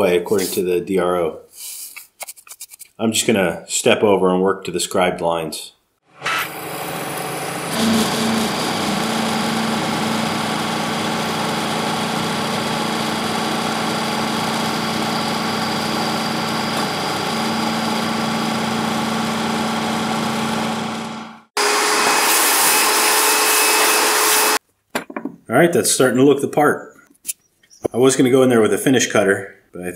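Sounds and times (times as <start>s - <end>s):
milling machine cutting metal: 6.2s - 19.5s, 21.6s - 24.6s.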